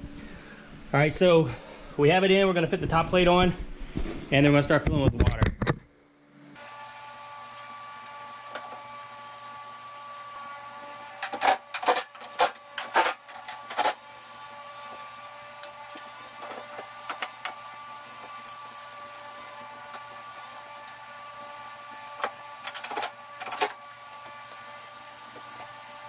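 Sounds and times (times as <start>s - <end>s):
machine hum: 5.9s - 26.0s.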